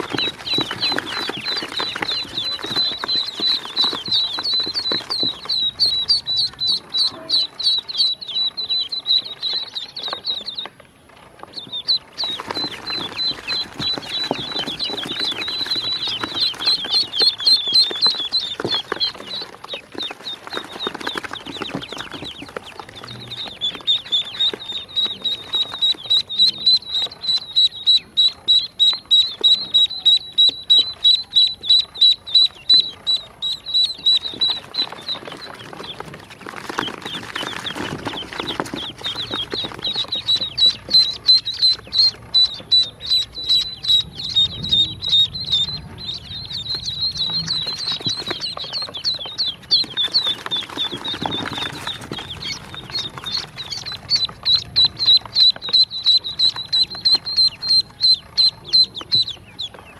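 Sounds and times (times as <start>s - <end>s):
ducklings peeping: 0.0s - 59.9s.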